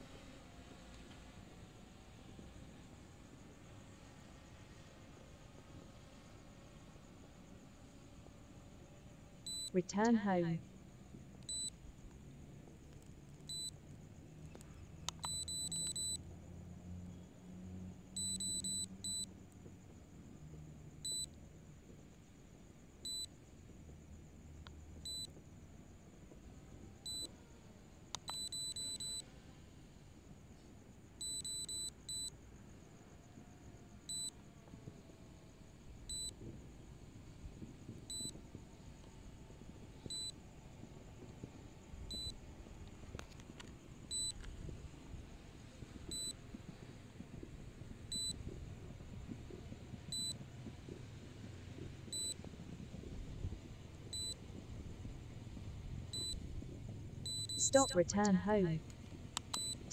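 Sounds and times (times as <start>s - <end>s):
high electronic warning beeps: 9.5s - 10.6s, 11.5s - 11.7s, 13.5s - 13.7s, 15.2s - 16.2s, 18.2s - 19.3s, 44.1s - 44.3s, 48.1s - 48.4s, 57.3s - 58.8s.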